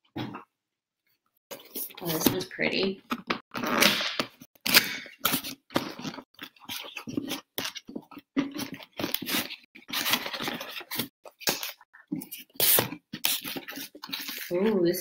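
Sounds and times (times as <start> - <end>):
packaging rustling and crinkling: 4.7 - 14.5.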